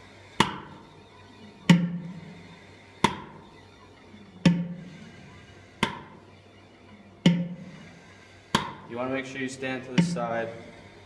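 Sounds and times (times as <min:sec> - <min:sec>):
syringe plunger knocking: 0:04.4 - 0:04.8, 0:07.2 - 0:07.8, 0:09.9 - 0:10.4.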